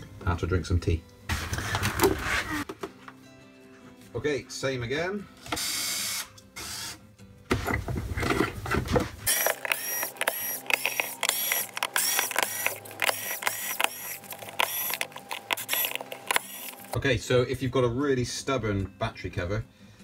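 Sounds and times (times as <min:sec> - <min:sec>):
handling noise: 0:07.8 - 0:17.0
plastic cover clicking and rattling: 0:08.2 - 0:17.0
cordless drill running: 0:09.3 - 0:17.0.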